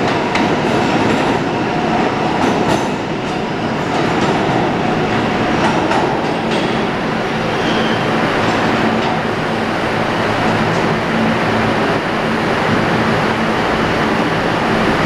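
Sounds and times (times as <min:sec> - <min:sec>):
train wheels clicking over rail joints: 0:00.0 - 0:07.0
train rumble and hum: 0:00.0 - 0:15.0.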